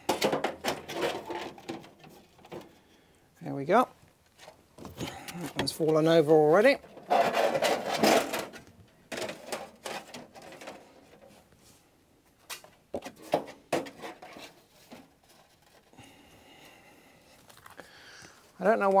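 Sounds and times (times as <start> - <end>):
plastic sheets scraping on metal: 0.0 - 2.8, 4.4 - 11.6, 12.4 - 16.2.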